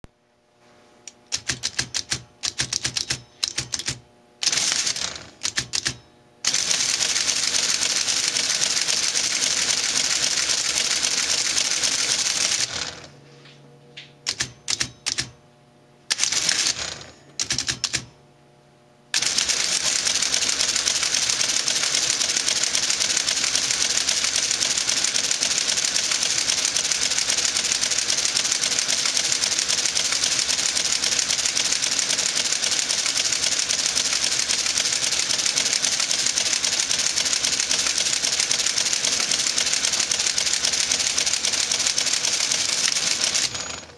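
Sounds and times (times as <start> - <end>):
calculator mechanism chattering: 1.2 - 13.1, 14.2 - 15.3, 16.1 - 18.1, 19.1 - 43.9
calculator key clicks: 1.3 - 4.0.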